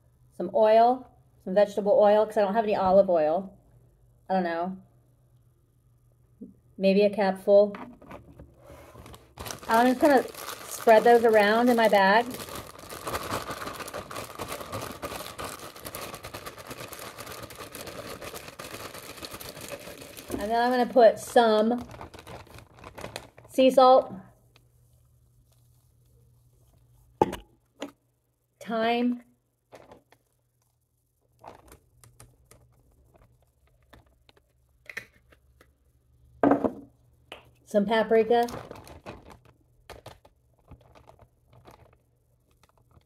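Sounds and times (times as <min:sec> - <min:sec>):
plastic bag crinkling: 0:09.0 - 0:24.0, 0:29.7 - 0:30.4, 0:31.2 - 0:34.5, 0:38.3 - 0:43.0.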